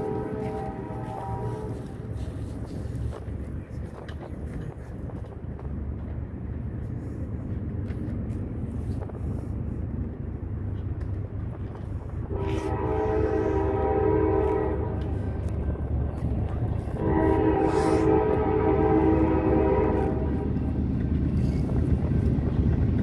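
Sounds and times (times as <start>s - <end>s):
train air horn blasts: 0.0s - 2.5s, 12.3s - 15.6s, 16.9s - 20.7s
diesel train rumble: 0.0s - 23.0s.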